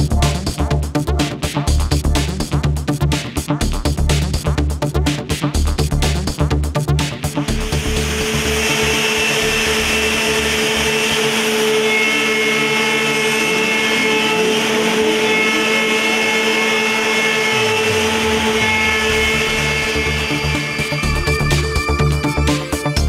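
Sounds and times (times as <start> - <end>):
deeper machine sound: 5.6 - 23.0
machine spindle whine: 7.4 - 23.0
hiss of wood cutting: 7.5 - 21.7.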